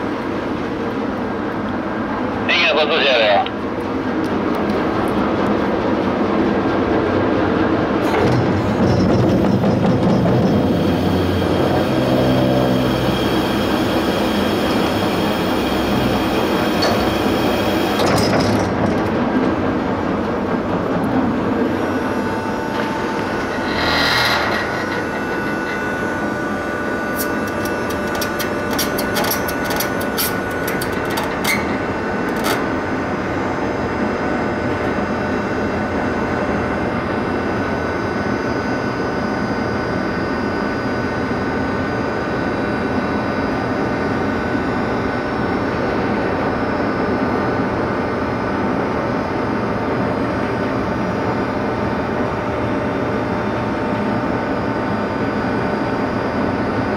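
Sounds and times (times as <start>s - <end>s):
ship engines and machinery running: 0.0s - 56.9s.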